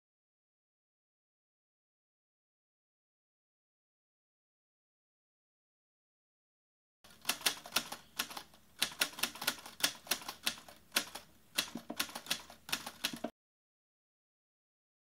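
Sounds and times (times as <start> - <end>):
manual typewriter typing: 7.1 - 13.3.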